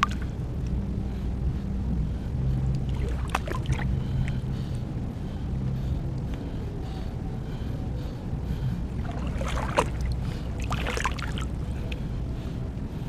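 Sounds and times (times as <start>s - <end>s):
low steady hum: 0.0s - 13.0s
sharp splashes: 9.0s - 11.5s
seawater swishing around arm: 9.0s - 11.6s.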